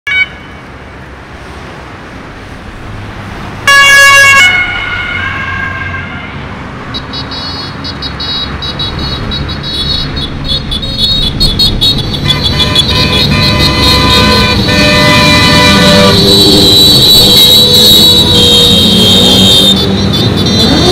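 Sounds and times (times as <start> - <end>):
loud horn blast: 3.6 - 6.4, 10.8 - 20.9
lower horn: 12.2 - 20.9.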